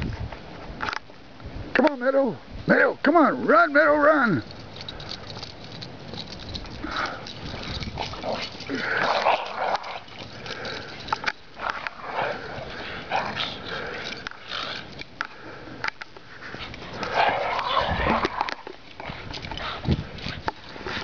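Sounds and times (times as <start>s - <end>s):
dogs play vocalizing: 4.6s - 15.1s, 16.5s - 21.0s
dogs scuffling in snow: 7.0s - 10.5s, 16.5s - 21.0s.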